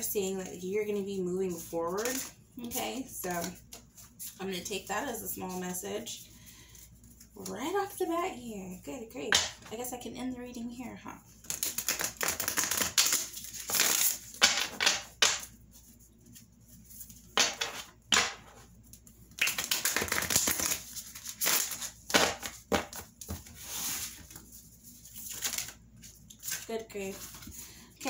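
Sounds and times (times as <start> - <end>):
cards shuffling: 1.5 - 4.4, 11.4 - 15.5, 17.0 - 27.6.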